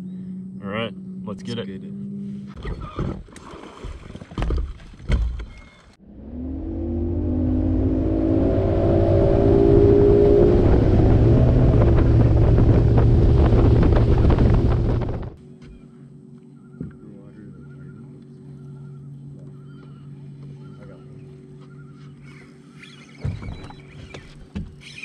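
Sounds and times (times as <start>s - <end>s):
outboard motor accelerating: 6.0s - 25.0s.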